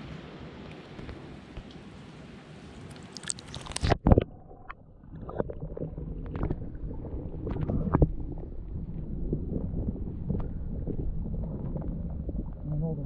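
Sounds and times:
underwater clicks and knocks: 3.2s - 12.8s
low underwater rumble: 3.7s - 13.0s.

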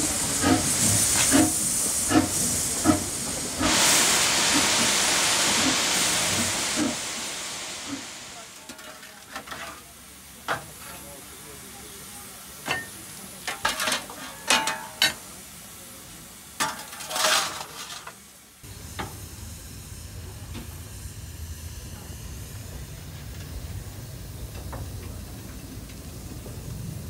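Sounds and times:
steam locomotive rumble with hiss: 0.0s - 27.0s
metal clanks and scrapes: 8.6s - 9.9s, 13.5s - 15.2s, 16.6s - 18.2s.

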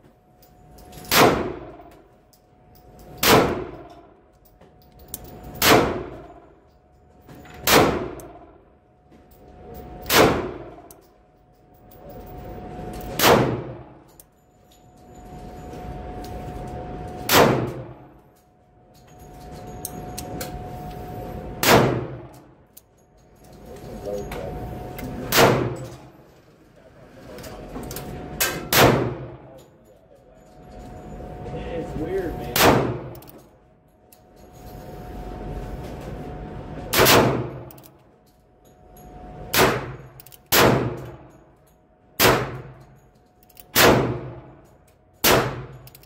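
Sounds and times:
revolver gunshot: 1.1s - 1.7s, 3.2s - 3.8s, 5.6s - 6.2s, 7.6s - 8.2s, 10.1s - 10.7s, 13.2s - 13.8s, 17.3s - 17.9s, 21.6s - 22.3s, 25.3s - 25.8s, 28.5s - 29.3s, 32.5s - 33.1s, 36.9s - 37.6s, 39.5s - 41.1s, 42.2s - 42.7s, 43.8s - 44.4s, 45.2s - 45.7s.

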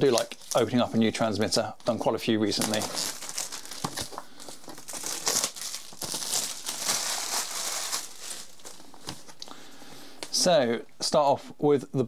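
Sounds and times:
packaging crinkling and rustling: 0.0s - 1.0s, 1.8s - 9.4s.

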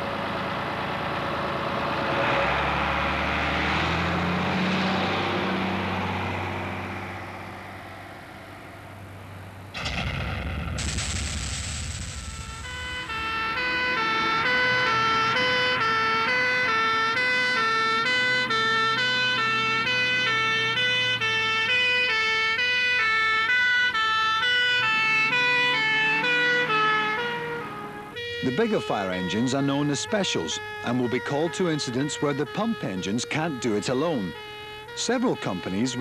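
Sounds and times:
two-tone fire engine siren: 2.0s - 8.9s, 12.2s - 36.0s
rush of noise: 9.8s - 13.3s.

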